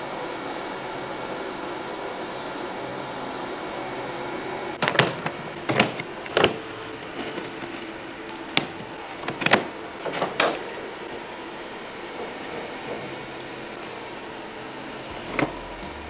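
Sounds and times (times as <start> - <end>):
cardboard box clacks and scrapes: 4.8 - 9.7
blade slitting cardboard: 4.8 - 10.6.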